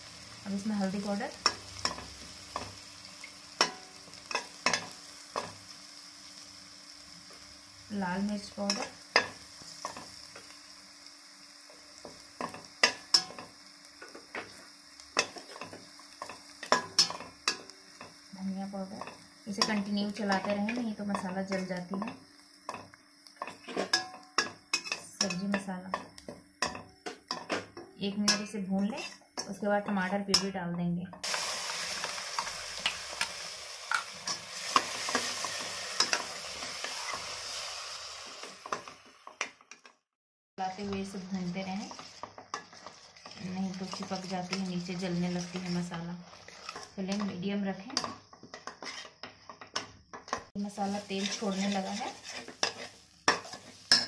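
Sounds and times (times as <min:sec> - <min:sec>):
onions sizzling in oil: 0:00.0 - 0:39.7, 0:40.6 - 0:54.0
spatula scraping pan: 0:28.3 - 0:29.6, 0:31.2 - 0:37.6, 0:41.7 - 0:54.0.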